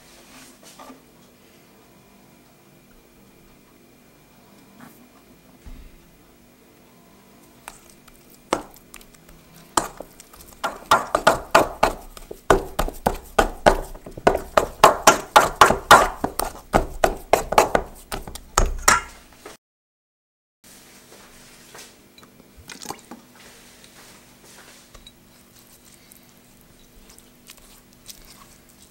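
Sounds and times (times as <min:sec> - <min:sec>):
wet slaps of kneaded dough: 0:07.7 - 0:19.1.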